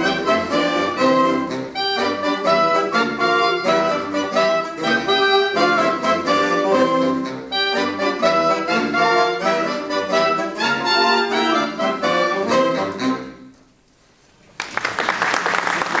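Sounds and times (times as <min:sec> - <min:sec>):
wind band playing: 0:00.0 - 0:13.6
applause: 0:14.5 - 0:16.0.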